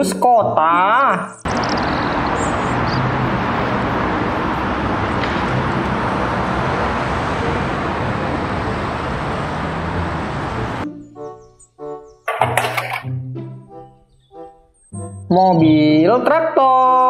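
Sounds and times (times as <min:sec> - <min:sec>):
street traffic noise: 0:01.4 - 0:13.1
bus driving past: 0:01.5 - 0:11.4.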